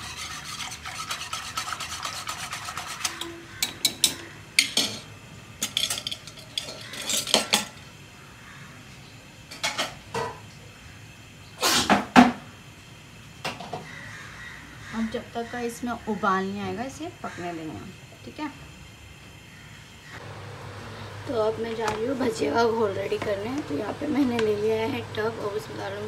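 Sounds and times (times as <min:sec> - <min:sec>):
whisk scraping metal pot: 0:00.0 - 0:03.4
metal utensils clinking: 0:02.8 - 0:07.8.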